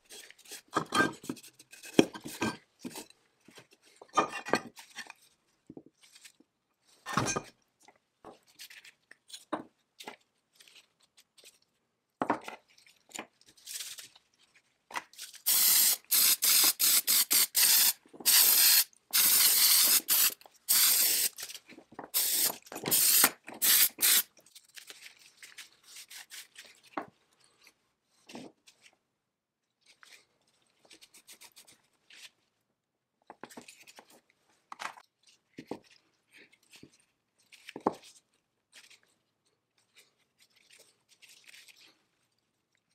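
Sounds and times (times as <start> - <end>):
choppy hissing bursts: 15.5 - 21.4, 22.2 - 24.2.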